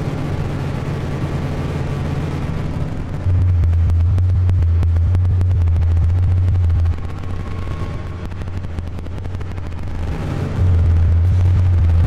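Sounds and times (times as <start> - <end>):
low rumbling noise drone: 0.0 - 12.0
crackle of clicks: 3.7 - 10.6.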